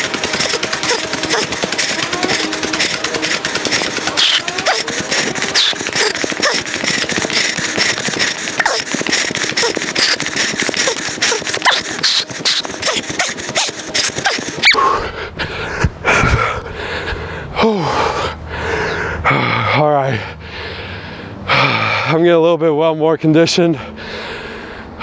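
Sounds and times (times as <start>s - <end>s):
drawn-out falling groan: 0.0s - 11.6s
running footfalls: 0.0s - 14.8s
person panting and gasping: 0.0s - 22.1s, 23.9s - 25.0s.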